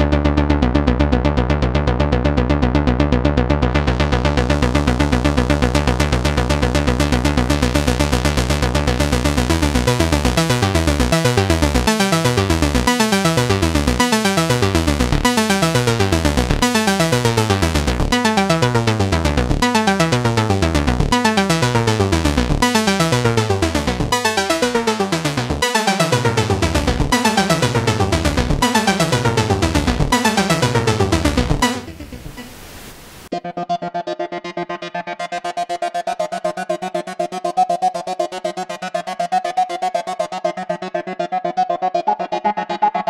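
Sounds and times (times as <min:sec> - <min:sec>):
synthesizer rapid pulsing pattern: 0:02.8 - 0:32.5
falling synth pitch sweeps: 0:22.6 - 0:32.5.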